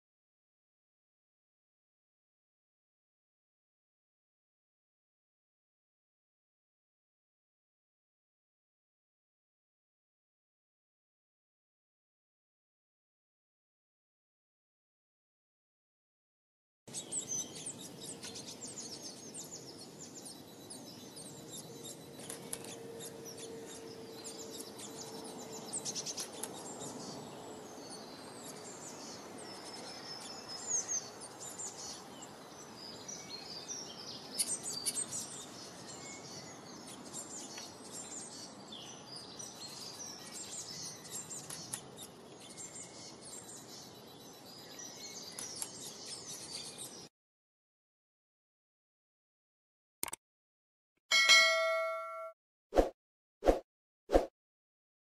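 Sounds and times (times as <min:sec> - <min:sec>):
songbirds chirping: 0:16.9 - 0:47.1.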